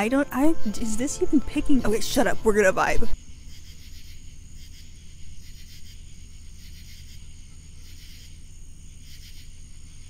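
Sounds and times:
crickets chirping: 3.2 - 10.0.

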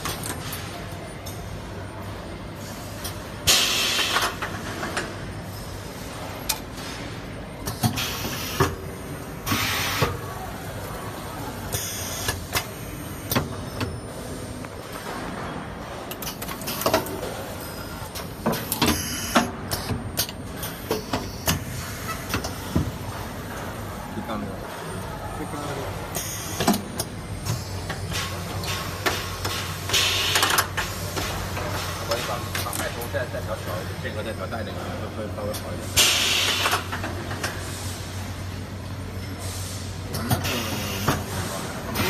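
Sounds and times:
pneumatic cylinders clacking: 2.6 - 10.3, 11.7 - 23.7, 26.1 - 33.1, 35.5 - 38.2, 39.2 - 42.0.

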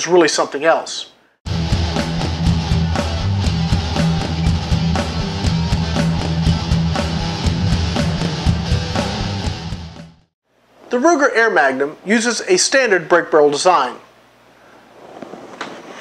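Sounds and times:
rock music with guitar and drums: 1.5 - 10.2.

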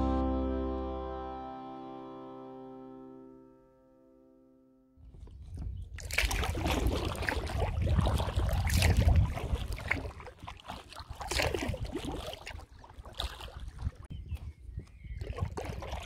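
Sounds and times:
water trickling off paddle: 5.0 - 14.1
kayak paddle splashing in water: 5.1 - 14.1, 15.2 - 16.0.

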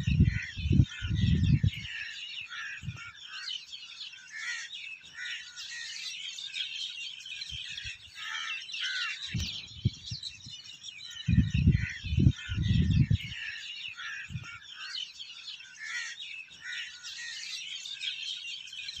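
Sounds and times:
small birds chirping: 0.0 - 19.0
low rumbling buffets: 11.3 - 13.2.

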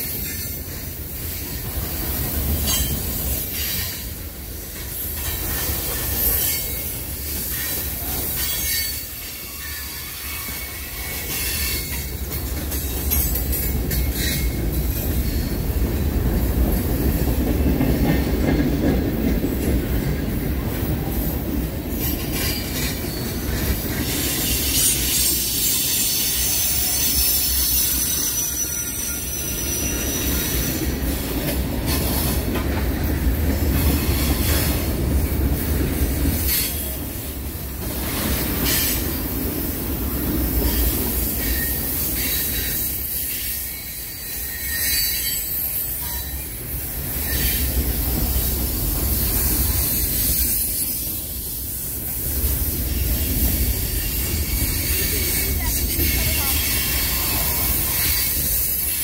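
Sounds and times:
train wheels rumbling on rails: 0.0 - 59.0
wheel squeal: 22.3 - 31.0, 41.4 - 46.4, 47.2 - 47.8.

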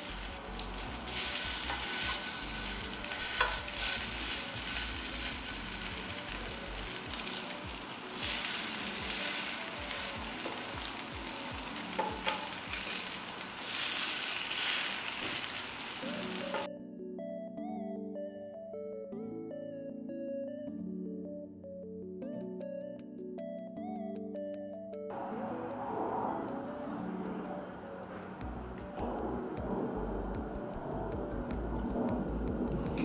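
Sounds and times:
patties sizzling in oil: 0.0 - 16.7
wooden utensils clicking on pan: 0.7 - 2.5, 3.1 - 4.8, 10.3 - 13.3.

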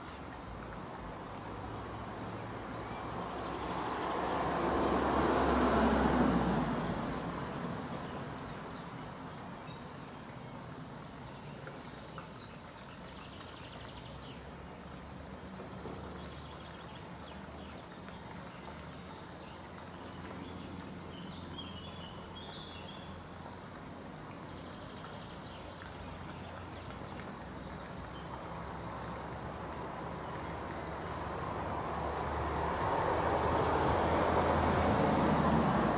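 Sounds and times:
passing vehicle rumble: 1.3 - 9.2, 27.8 - 35.9
small birds chirping: 6.9 - 31.2.

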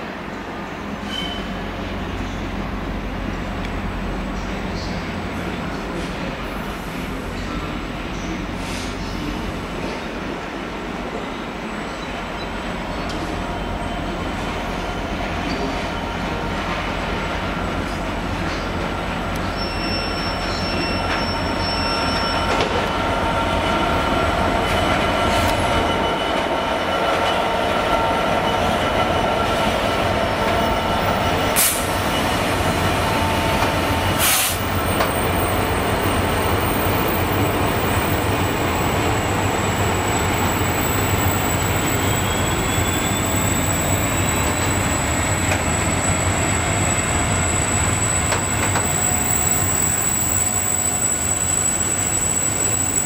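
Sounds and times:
diesel locomotive engine: 0.0 - 53.0
high wheel squeal: 1.0 - 1.6, 19.4 - 53.0.

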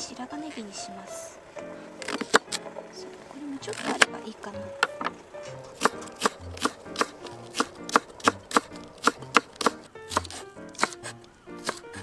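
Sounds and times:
knife chopping on wooden board: 5.0 - 12.0.

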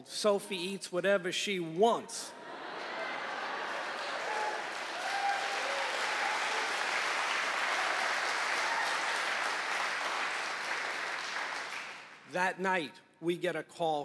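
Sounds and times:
audience applauding: 2.6 - 12.2.

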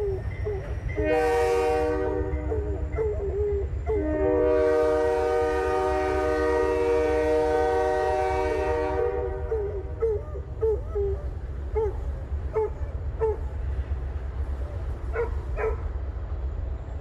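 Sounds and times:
rumble of passing train: 0.0 - 17.0
locomotive air horn: 0.9 - 10.1
dog howling: 2.3 - 4.2, 9.4 - 13.5.

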